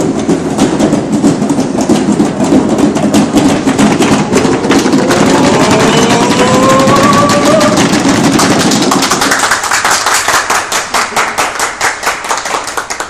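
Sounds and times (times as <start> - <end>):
men clapping rhythmically: 0.0 - 13.0
long rising yell: 4.8 - 8.0
men shouting together: 5.1 - 7.8.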